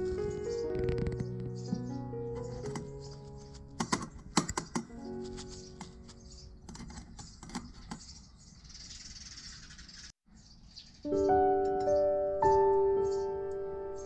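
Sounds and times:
soft background music: 0.0s - 7.4s, 11.0s - 14.0s
paper filter rustling: 0.0s - 7.9s.

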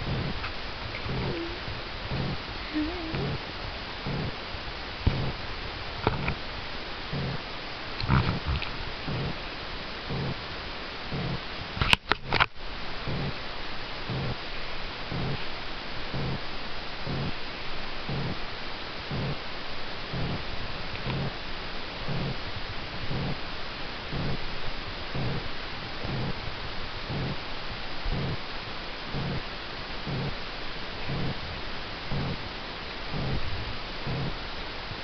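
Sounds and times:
cat purring: 0.0s - 4.4s, 5.0s - 5.4s, 7.1s - 9.4s, 10.0s - 10.4s, 11.1s - 11.4s, 13.0s - 13.4s, 14.1s - 14.4s, 15.1s - 15.4s, 16.1s - 16.4s, 18.1s - 18.4s, 19.1s - 19.4s, 20.1s - 21.4s, 22.1s - 22.4s, 23.0s - 23.4s, 24.1s - 24.5s, 25.1s - 26.5s, 27.1s - 27.4s, 28.1s - 28.4s, 29.1s - 29.4s, 30.0s - 30.4s, 31.0s - 31.5s, 32.1s - 32.5s, 33.1s - 34.4s.

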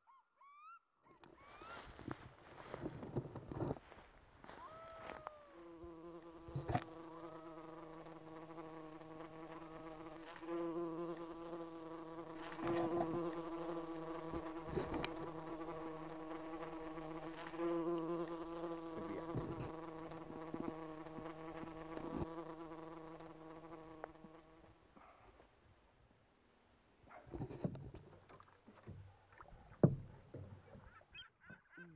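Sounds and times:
flying insect buzzing: 4.5s - 24.7s.

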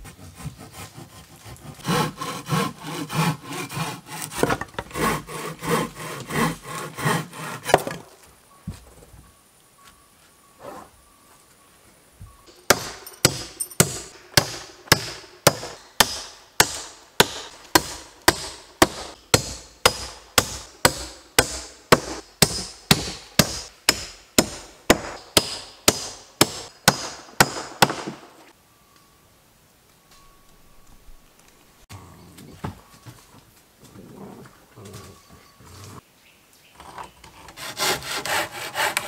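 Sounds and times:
hammer driving nails into wood: 12.7s - 28.3s.

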